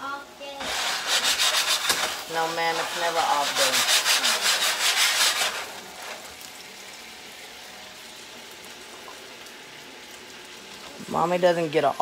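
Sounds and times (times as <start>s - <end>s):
eggs sizzling in a skillet: 0.0s - 12.0s.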